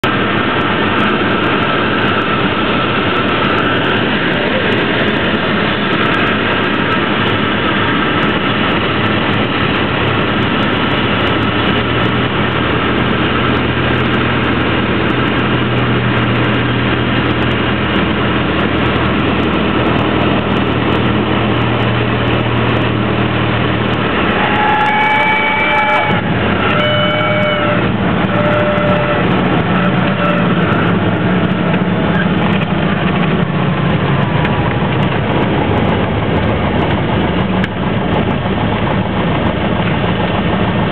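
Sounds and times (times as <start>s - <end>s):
aircraft engine and propeller droning: 0.0s - 40.9s
high whistling tones: 24.3s - 31.0s.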